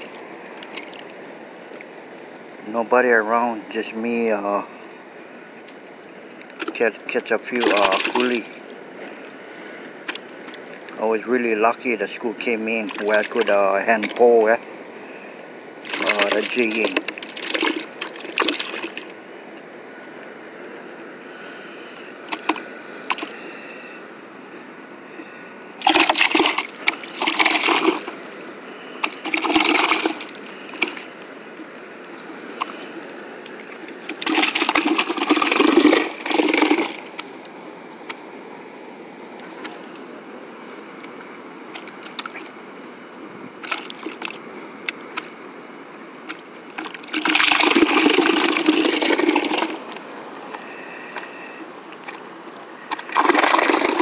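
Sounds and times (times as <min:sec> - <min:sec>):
fish flapping and splashing: 0:07.5 - 0:08.6, 0:15.8 - 0:19.1, 0:22.3 - 0:23.4, 0:25.8 - 0:31.2, 0:32.5 - 0:37.3, 0:41.7 - 0:42.5, 0:43.6 - 0:44.4, 0:46.2 - 0:50.0, 0:52.8 - 0:54.0.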